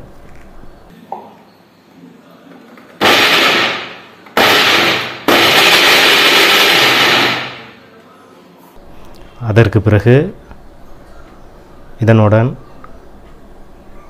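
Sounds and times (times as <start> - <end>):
mixer grinder grinding in bursts: 4.4 - 7.4.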